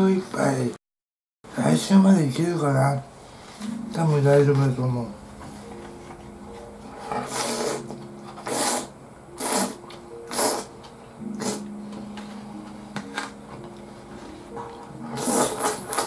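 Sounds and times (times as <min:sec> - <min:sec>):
slurping noodles: 0:07.1 - 0:11.7, 0:15.0 - 0:16.0.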